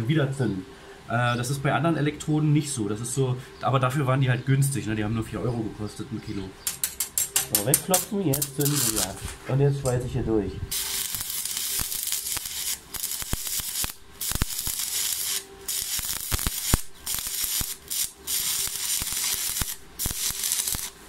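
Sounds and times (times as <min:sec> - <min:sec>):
welding arc crackling hiss: 0:07.6 - 0:09.4, 0:10.7 - 0:21.0.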